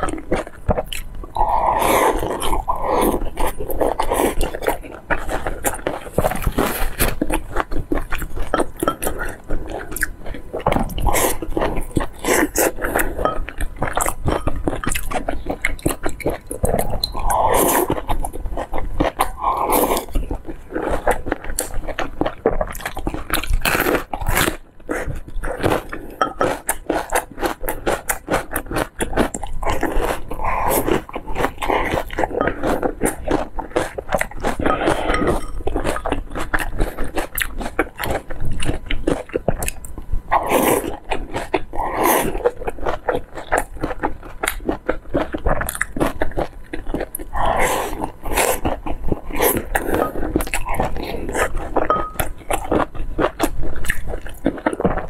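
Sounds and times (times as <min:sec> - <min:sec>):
biting and chewing: 0:00.0 - 0:55.0.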